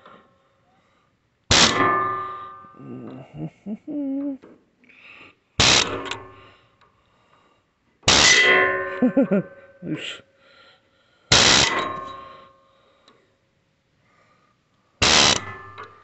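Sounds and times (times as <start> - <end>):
pneumatic air chisel hammering: 1.5 - 2.4, 5.6 - 6.4, 8.1 - 8.6, 11.3 - 12.4, 15.0 - 15.9.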